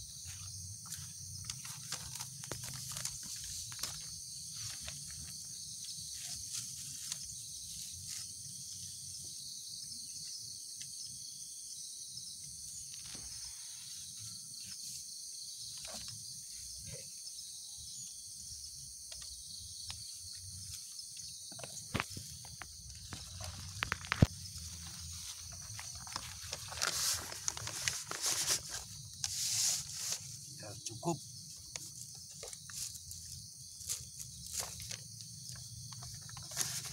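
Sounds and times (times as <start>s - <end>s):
insect chorus: 0.0s - 36.9s
paper and plastic bags crinkling: 0.9s - 5.4s, 21.6s - 30.4s, 31.8s - 36.9s.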